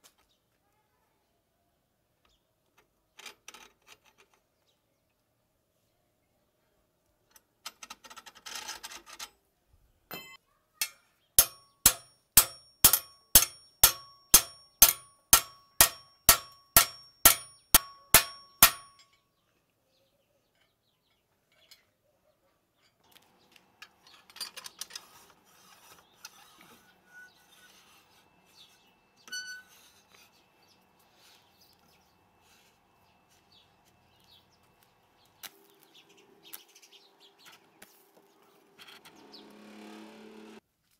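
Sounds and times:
hammer striking steel rebar: 0:10.1 - 0:19.2
metal scraping and handling: 0:10.2 - 0:19.2, 0:23.8 - 0:34.4.

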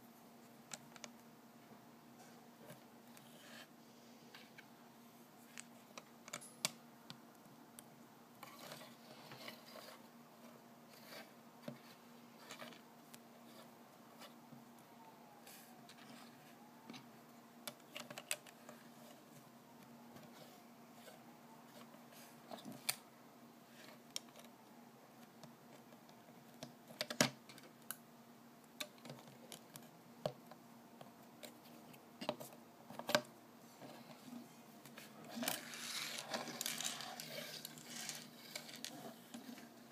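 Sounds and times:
plastic bricks clicking and scraping: 0:35.3 - 0:39.7.

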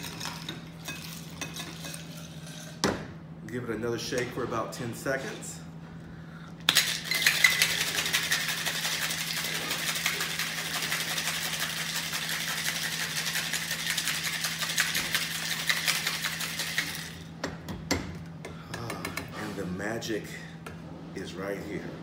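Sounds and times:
ice rattling in cocktail shaker: 0:06.7 - 0:17.3.

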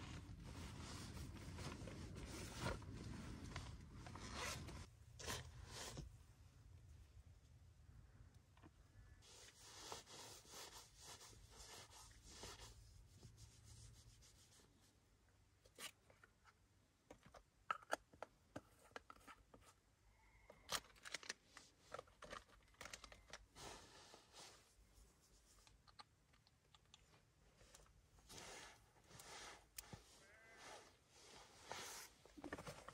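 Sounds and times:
clothing and sleeping bag rustling: 0:00.0 - 0:04.9, 0:28.3 - 0:32.9.

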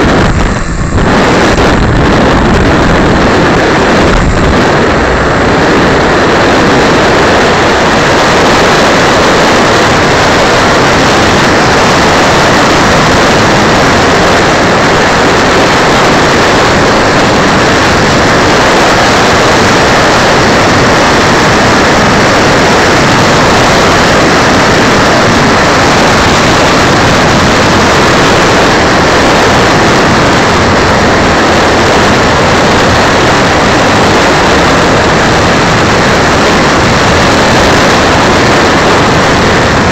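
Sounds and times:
loud steady rushing noise: 0:00.0 - 0:39.9.

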